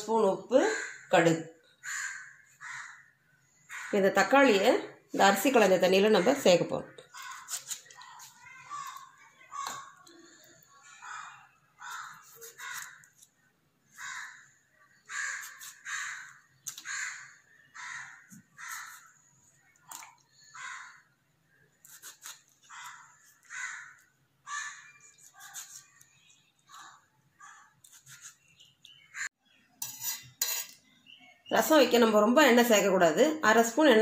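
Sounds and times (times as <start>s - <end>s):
crows cawing: 0.7s - 1.1s, 1.8s - 4.0s, 10.9s - 13.1s, 13.9s - 19.1s, 20.4s - 21.1s, 22.6s - 25.2s.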